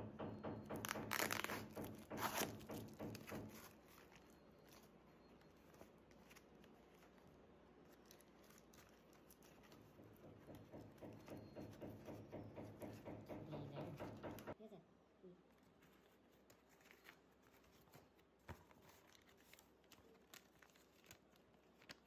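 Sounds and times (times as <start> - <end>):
paper crinkling: 0.8 - 12.2, 15.5 - 22.0
paper envelope ripping: 0.9 - 2.8, 5.6 - 10.0, 15.8 - 22.0.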